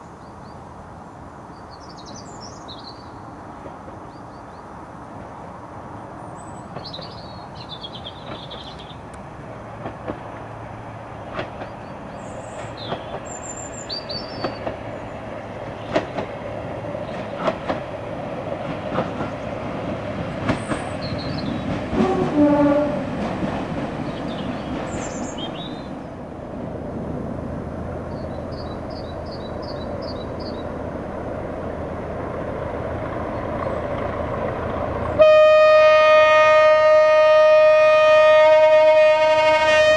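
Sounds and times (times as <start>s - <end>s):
birds chirping: 1.5s - 3.3s, 6.2s - 9.1s, 11.5s - 17.7s, 19.0s - 22.0s, 23.8s - 26.2s, 27.9s - 30.9s
train wheels clicking on rail joints: 6.6s - 25.8s, 27.8s - 35.2s
train horn blast: 21.9s - 23.1s, 35.2s - 39.9s.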